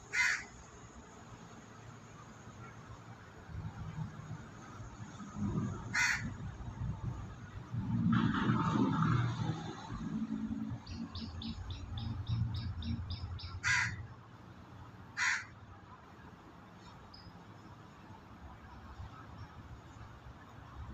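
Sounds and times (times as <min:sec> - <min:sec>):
crow cawing: 0:00.1 - 0:00.5, 0:05.9 - 0:06.3, 0:13.6 - 0:14.0, 0:15.2 - 0:15.6.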